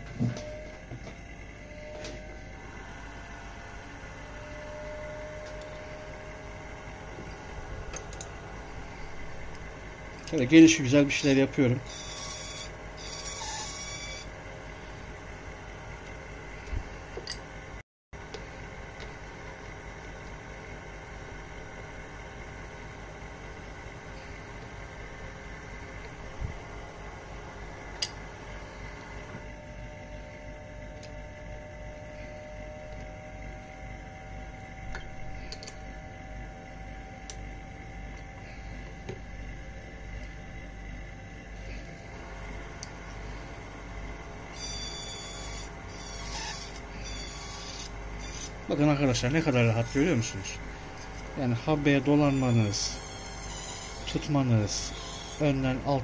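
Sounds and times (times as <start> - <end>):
vacuum running: 0.0 - 56.0
lathe motor hum: 23.2 - 56.0
lathe running: 41.9 - 55.9.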